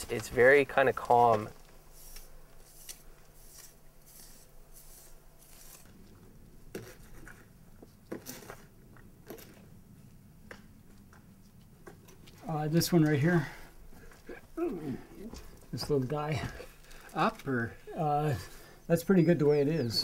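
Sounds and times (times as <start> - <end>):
blade scraping wet mortar: 1.9 - 5.9.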